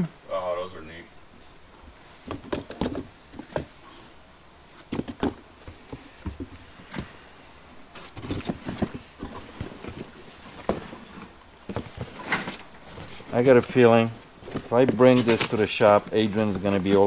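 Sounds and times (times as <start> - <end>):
cardboard flaps folding: 7.9 - 17.0.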